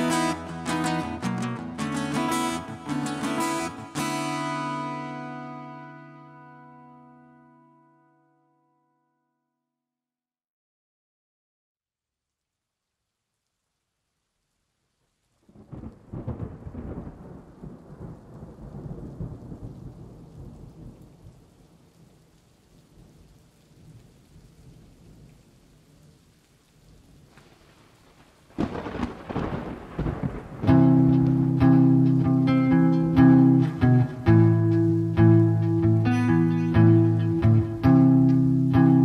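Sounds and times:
rain: 0.0 - 7.0, 12.2 - 39.0
rolling thunder: 15.5 - 21.4, 27.5 - 32.3.

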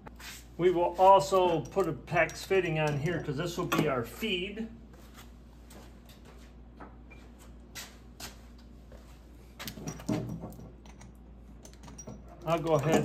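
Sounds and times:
steady low hum: 0.0 - 13.0
plumbing parts clicking: 10.7 - 13.0.

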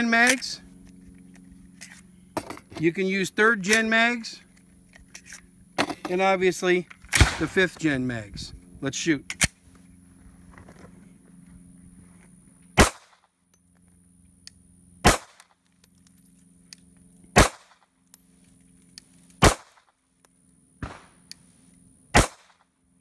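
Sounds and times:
pistol shots: 7.1 - 7.6, 12.8 - 13.2, 15.0 - 15.4, 17.4 - 17.8, 19.4 - 19.9, 20.8 - 21.2, 22.1 - 22.6.

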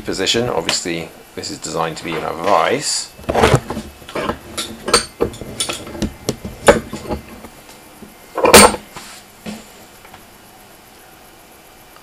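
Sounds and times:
metal clunk: 3.2 - 7.4, 8.4 - 8.9.

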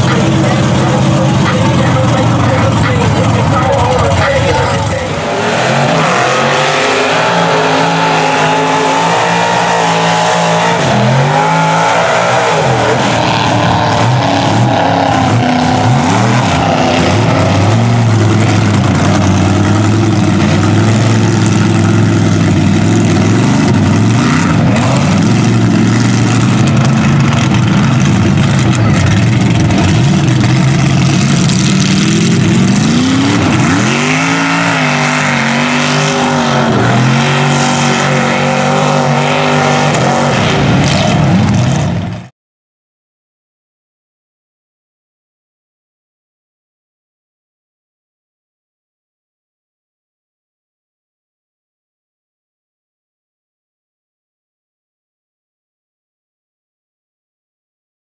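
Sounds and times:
truck engine revving: 0.0 - 42.3.

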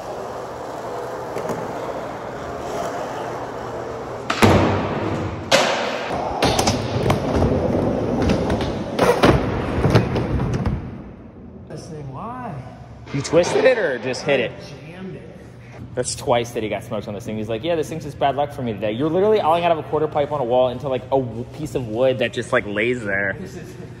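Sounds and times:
skateboard wheels rolling on concrete: 0.0 - 5.5.

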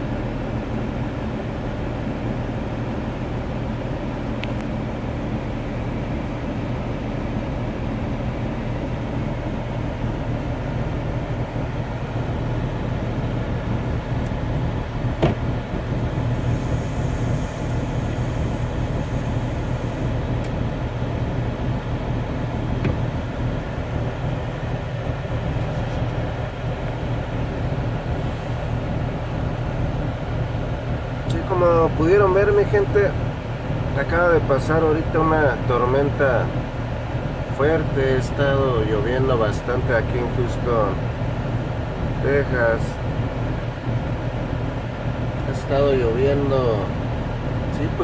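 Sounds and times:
diesel truck engine idling: 0.0 - 48.0
rain hissing on truck: 12.0 - 48.0.

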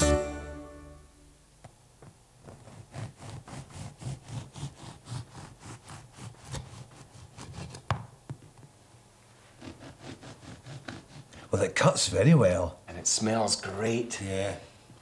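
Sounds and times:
bread knife sawing through bread: 2.4 - 7.8, 9.5 - 12.2.

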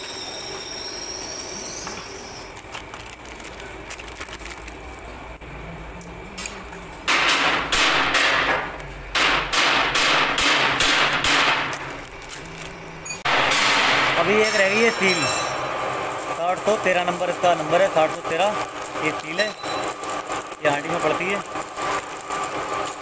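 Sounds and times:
plastic wrapping crinkling: 2.5 - 5.3, 11.8 - 13.1
steel parts clinking: 11.6 - 23.0.

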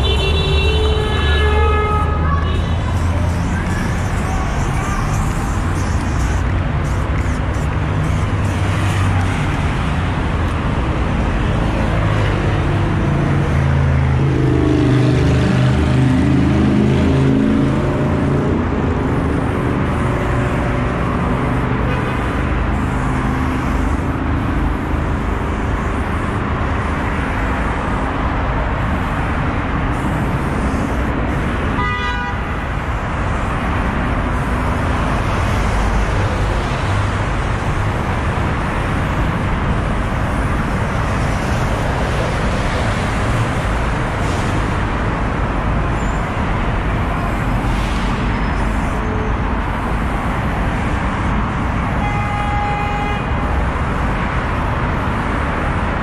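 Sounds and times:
road traffic noise: 0.0 - 56.0
car horn toot: 31.8 - 32.5, 52.0 - 53.3.

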